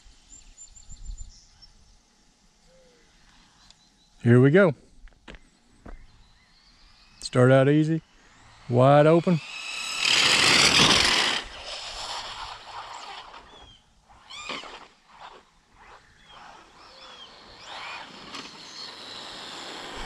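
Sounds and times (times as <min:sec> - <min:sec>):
faint bird chirps: 0:00.2 - 0:04.3, 0:05.3 - 0:08.6, 0:12.9 - 0:14.5, 0:15.8 - 0:19.2
rc truck motor and tyre rush: 0:06.1 - 0:20.0.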